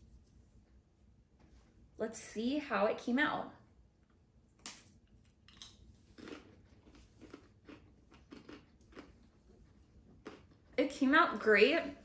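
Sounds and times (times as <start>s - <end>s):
faint chewing: 4.6s - 10.8s.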